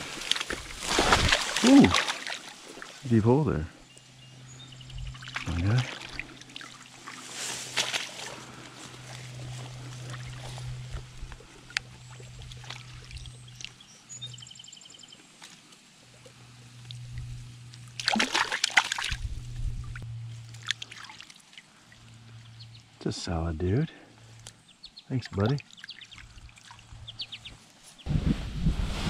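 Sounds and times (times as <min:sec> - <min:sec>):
loud splashing: 0:00.0 - 0:03.0, 0:18.0 - 0:19.2
stream water splashing: 0:00.0 - 0:03.5, 0:05.1 - 0:13.9, 0:16.9 - 0:22.5, 0:25.1 - 0:27.8.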